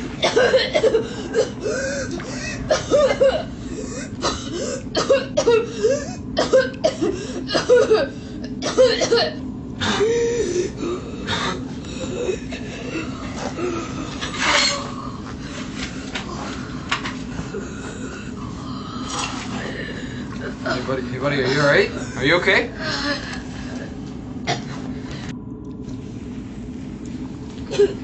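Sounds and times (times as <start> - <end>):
steady low hum: 0.0 - 28.0
boys coughing: 0.2 - 10.1, 20.4 - 22.2, 27.7 - 28.0.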